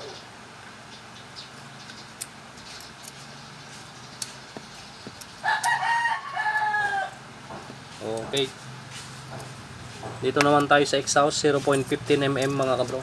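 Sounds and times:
hand tools clicking on metal: 4.2 - 6.8, 9.2 - 13.0
rooster crowing: 5.4 - 7.4.

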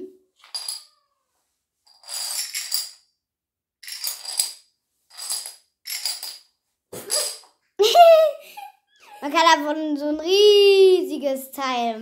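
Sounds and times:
plastic dominoes clattering: 0.4 - 1.0, 1.8 - 3.1, 3.8 - 6.5.

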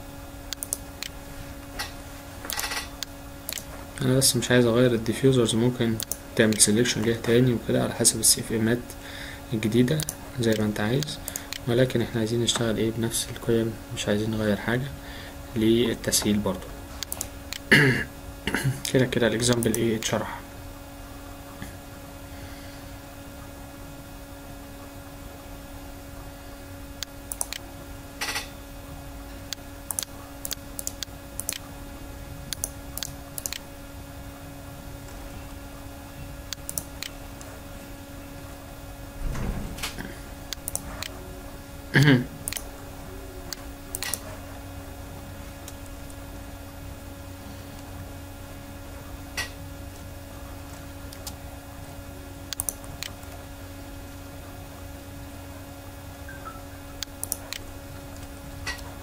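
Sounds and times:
electrical hum: 0.0 - 59.0
mouse and keyboard clicks: 29.9 - 31.6, 32.5 - 33.6.

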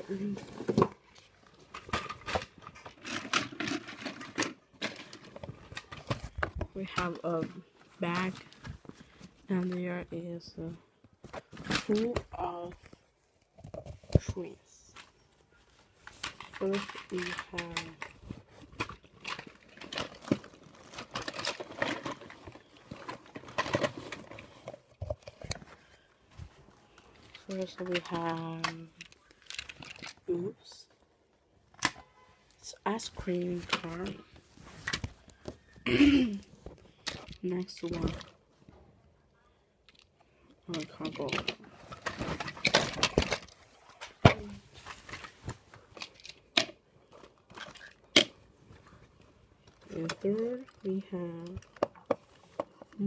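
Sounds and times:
plastic toy wagons clicking on wood: 1.7 - 6.1, 16.1 - 18.2, 27.3 - 30.2
bag rustling and crinkling: 15.0 - 30.3.

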